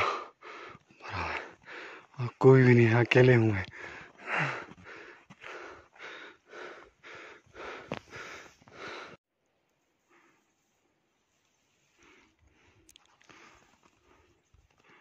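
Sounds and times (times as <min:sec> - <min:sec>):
voiced breath: 0:00.0 - 0:02.2, 0:03.7 - 0:09.2.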